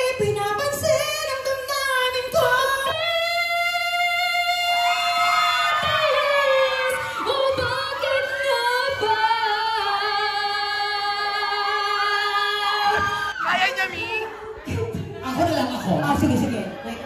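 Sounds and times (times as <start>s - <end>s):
woman singing with vibrato: 0.0s - 15.8s.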